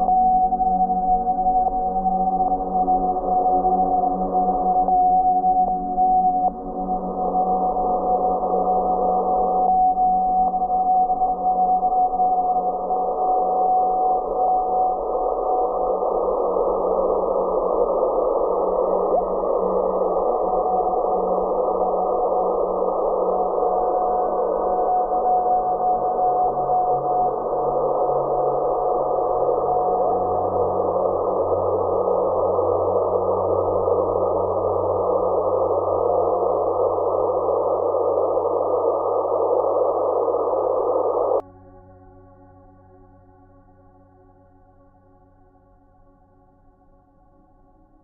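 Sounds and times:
steady whistling tone: 0:00.0 - 0:41.4
low hum: 0:00.0 - 0:47.8
radio receiver hiss: 0:28.8 - 0:41.4.

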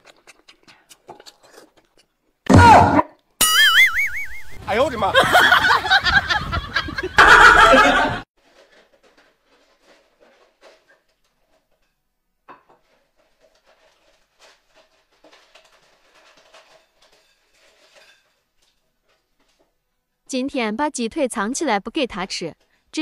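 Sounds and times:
cartoonish laughter sound effects: 0:05.2 - 0:08.2.

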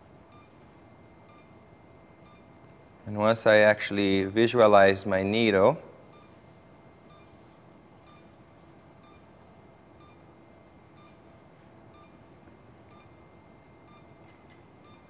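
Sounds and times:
faint equipment hum: 0:00.0 - 0:15.0
faint regular beeps: 0:00.3 - 0:02.9, 0:06.1 - 0:15.0.

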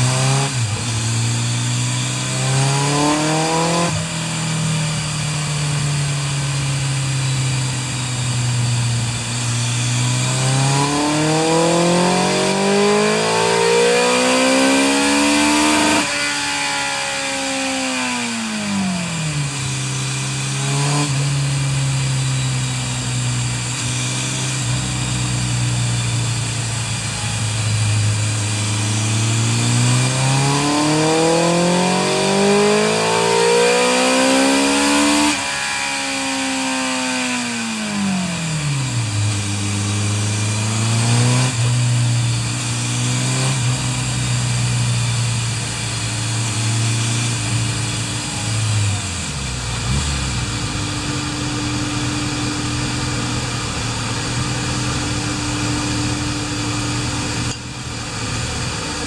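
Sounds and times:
motorcycle engine revving on a dyno: 0:00.0 - 0:59.0
motorcycle engine idling: 0:47.5 - 0:59.0.

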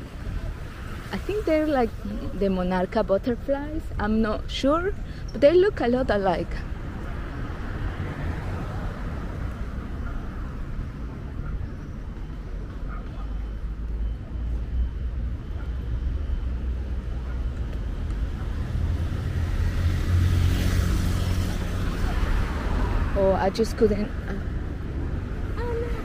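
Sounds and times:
road traffic rumble: 0:00.0 - 0:26.0
vehicle passing close: 0:17.2 - 0:26.0.

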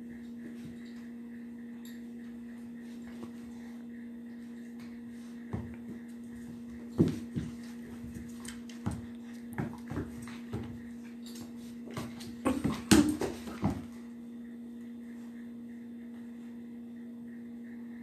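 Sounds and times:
steady low hum: 0:00.0 - 0:18.0
dogs scuffling: 0:02.6 - 0:14.1.

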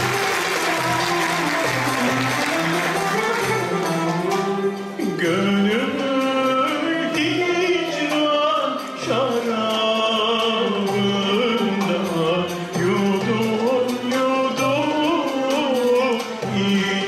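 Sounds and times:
instrumental ensemble with violin: 0:00.0 - 0:17.0
man singing solo: 0:05.0 - 0:17.0.

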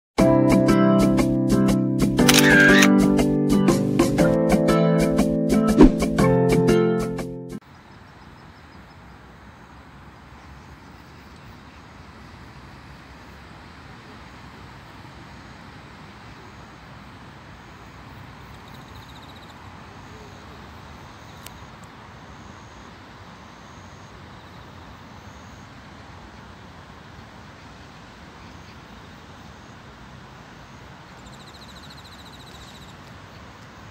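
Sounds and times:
single click: 0:02.2 - 0:02.9
distant road traffic hum: 0:07.6 - 0:33.9.

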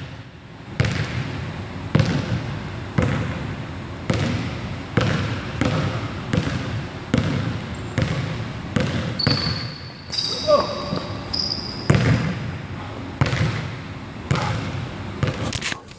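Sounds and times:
basketball bouncing on hardwood floor: 0:00.8 - 0:01.2, 0:01.9 - 0:02.4, 0:03.0 - 0:03.4, 0:04.1 - 0:12.5, 0:13.2 - 0:15.4.

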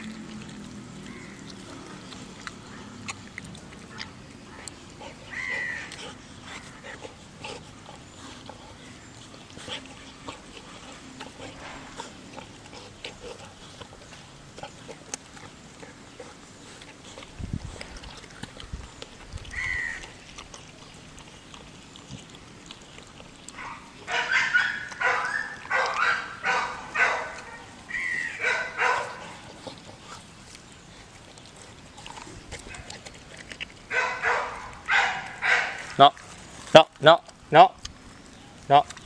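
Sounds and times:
dog barking: 0:23.6 - 0:27.7, 0:28.4 - 0:29.4, 0:33.9 - 0:35.8.

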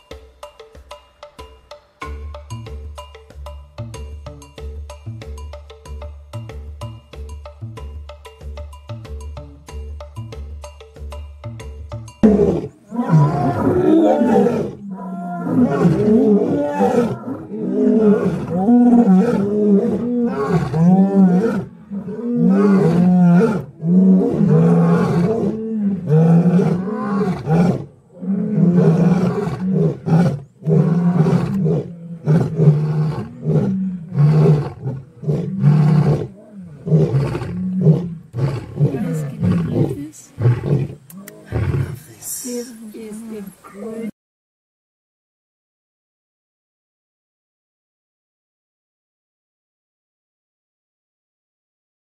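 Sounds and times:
lions growling and roaring: 0:12.2 - 0:42.0.

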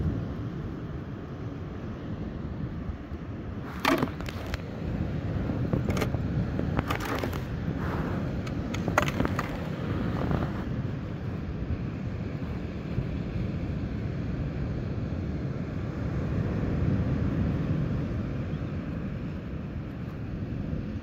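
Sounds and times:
wind on microphone: 0:02.2 - 0:21.0
clicks and rustles of handling: 0:03.7 - 0:04.7, 0:05.8 - 0:07.5, 0:08.4 - 0:10.5.

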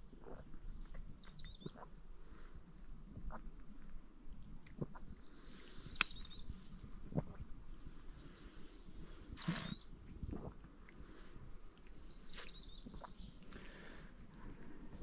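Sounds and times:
short high bird chirp: 0:09.4 - 0:09.9, 0:12.0 - 0:13.3
rustling in vegetation: 0:12.0 - 0:13.5.

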